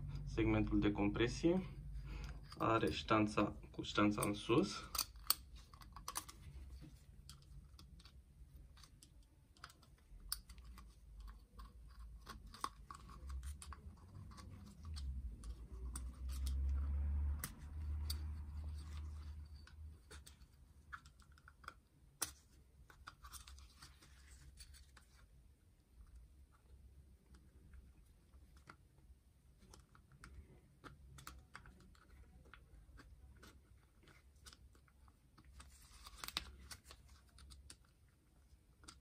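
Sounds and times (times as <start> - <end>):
piston ring clicks and scratches: 4.1 - 25.2.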